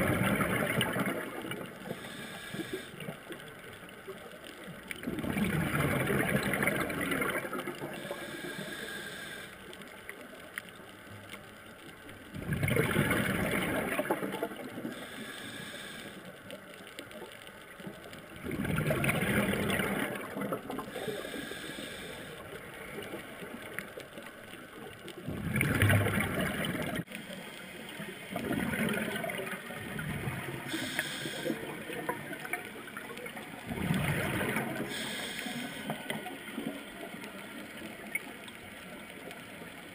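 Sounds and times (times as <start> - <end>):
exhaled bubbles gurgling underwater: 0.0 - 39.9
scuba regulator hiss: 1.9 - 3.0, 8.0 - 9.6, 14.9 - 16.3, 20.9 - 22.4, 30.7 - 31.7, 34.8 - 36.2.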